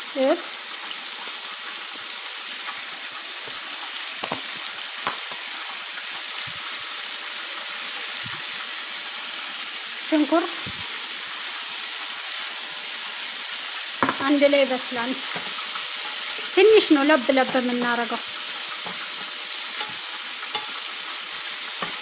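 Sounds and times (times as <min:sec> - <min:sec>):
vegetables sizzling in oil: 0:00.0 - 0:22.0
wooden spatula stirring: 0:15.3 - 0:20.9.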